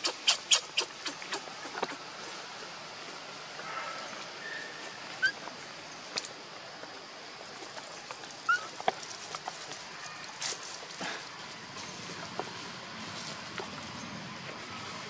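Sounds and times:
high animal chirps: 0.0 - 2.0
steady outdoor hiss: 0.0 - 15.0.

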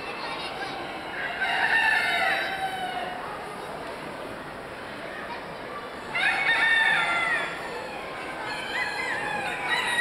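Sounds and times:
busy hall din: 0.0 - 10.0
roosters crowing: 1.1 - 3.2, 6.1 - 10.0.

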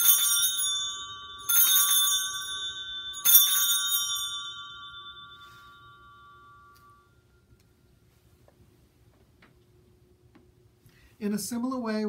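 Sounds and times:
altar bell ringing: 0.0 - 8.0.

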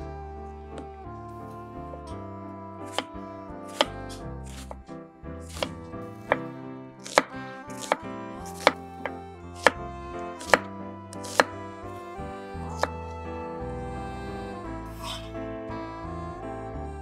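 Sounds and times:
background music: 0.0 - 17.0
knife chopping on wooden board: 2.9 - 3.1, 3.7 - 4.8, 5.4 - 9.8, 10.4 - 11.5.

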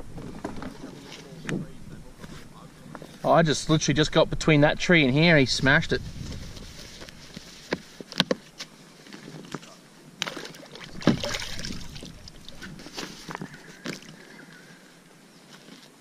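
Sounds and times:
water splash: 10.2 - 12.9.

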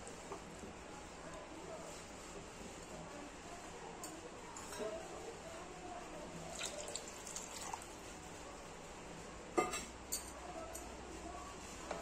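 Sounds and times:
pan simmering and bubbling: 6.4 - 8.9.

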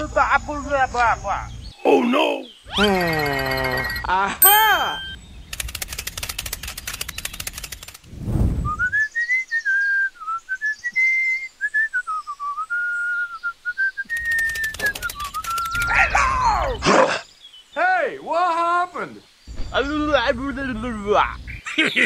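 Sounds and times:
whistled melody: 2.8 - 5.2, 8.6 - 15.9
rapid clicking rattle: 5.5 - 8.0, 14.1 - 15.9
low whoosh: 8.0 - 9.0.

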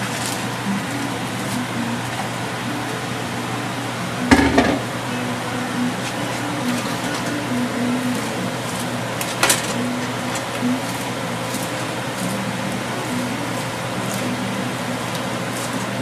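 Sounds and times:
sizzling hiss: 0.0 - 16.0
wooden spatula knocking on wok: 4.3 - 4.9.

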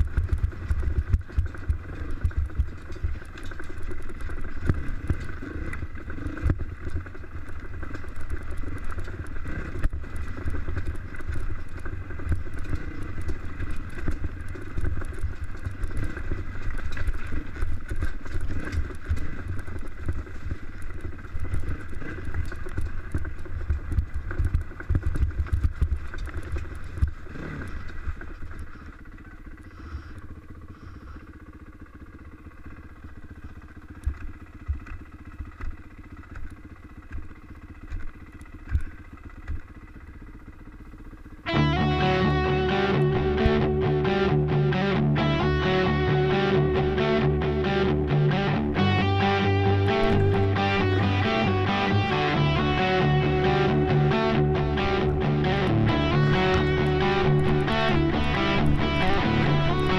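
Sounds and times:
bike knocking over rocks: 0.0 - 29.2, 33.2 - 40.0
dirt bike engine revving: 0.0 - 40.6, 41.4 - 59.9.

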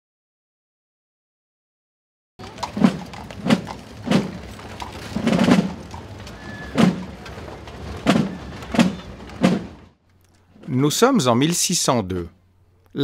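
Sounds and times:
deep heavy thumps: 2.4 - 9.9
rumbling hit: 2.4 - 10.0.

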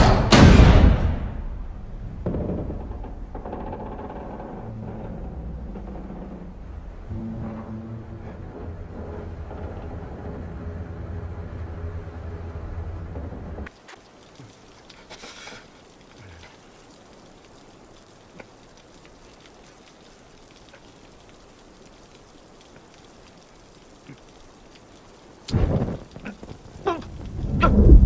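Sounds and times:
light rain hissing: 1.4 - 28.0
small ticks: 13.8 - 27.4.

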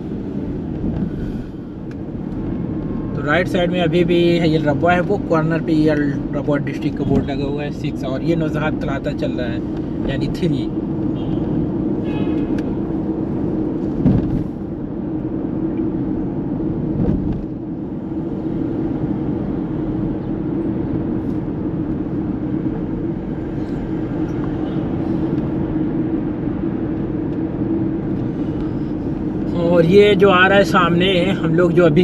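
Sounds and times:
car engine and tyre hum: 0.0 - 32.0
brief thump: 14.0 - 14.5.

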